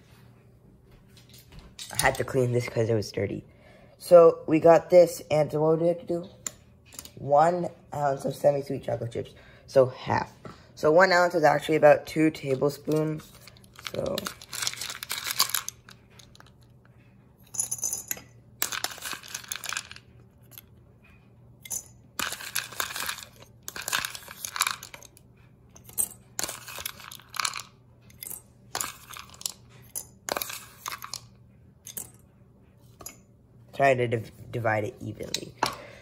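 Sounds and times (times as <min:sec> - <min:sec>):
chocolate chips rattling in plastic bowl: 0:12.1 - 0:16.6, 0:18.6 - 0:20.2, 0:21.7 - 0:25.2, 0:25.9 - 0:29.6, 0:30.2 - 0:31.3
chips clinking into ceramic mugs: 0:12.4 - 0:16.6, 0:17.5 - 0:20.6, 0:21.6 - 0:25.2, 0:25.8 - 0:32.2.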